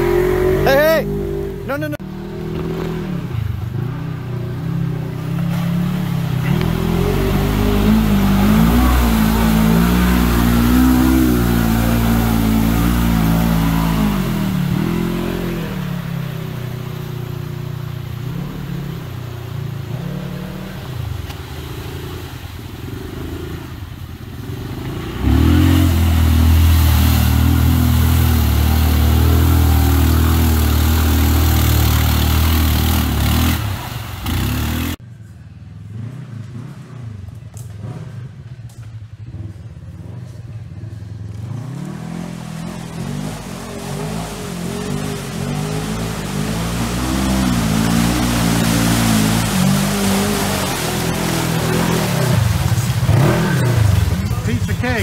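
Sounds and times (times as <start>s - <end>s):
atv engines revving: 0.0s - 55.0s.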